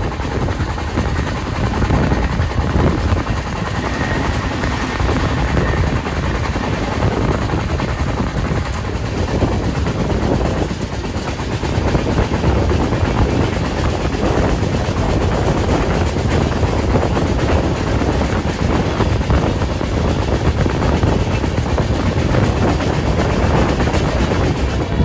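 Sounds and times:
train wheels rumbling on track: 0.0s - 25.0s.

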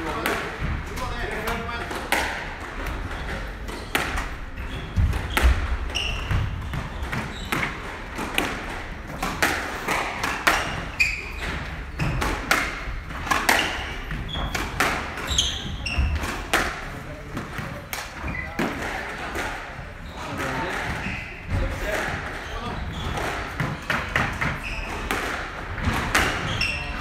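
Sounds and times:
squash ball hitting rackets and walls: 0.0s - 27.0s
sneaker squeaks on wooden floor: 3.0s - 8.2s, 10.4s - 16.8s, 18.1s - 18.8s, 19.9s - 27.0s.

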